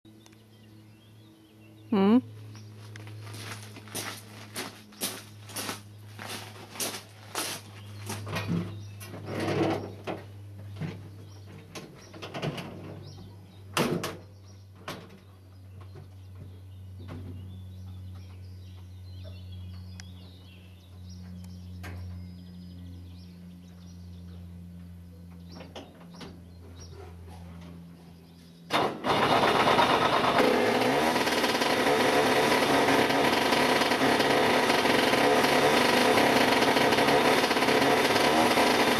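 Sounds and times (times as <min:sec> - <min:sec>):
birds chirping: 0:00.1 - 0:28.8
steady low hum: 0:00.1 - 0:29.2
knocks and clatter of climbing: 0:06.7 - 0:17.5.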